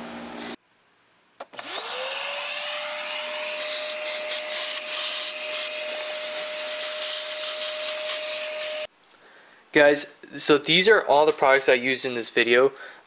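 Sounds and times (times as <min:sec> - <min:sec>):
vacuum cleaner motor whining: 0:01.4 - 0:08.9.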